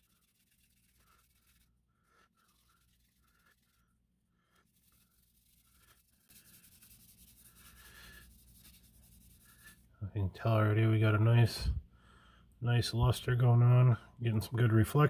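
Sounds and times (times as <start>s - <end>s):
cloth rubbing on plastic: 0.0s - 9.9s.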